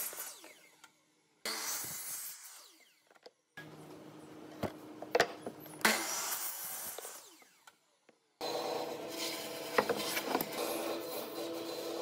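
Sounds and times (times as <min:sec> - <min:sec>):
miter saw cutting wood: 0:00.0 - 0:00.9.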